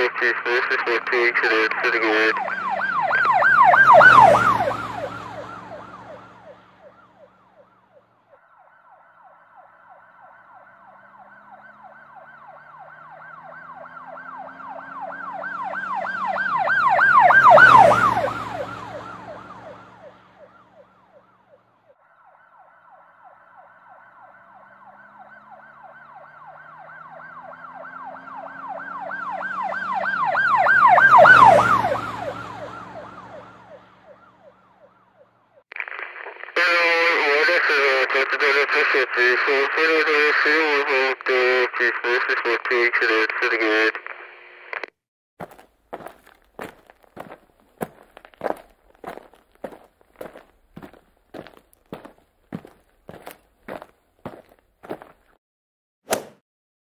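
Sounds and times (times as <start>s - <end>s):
emergency vehicle siren passing: 0.0s - 35.6s.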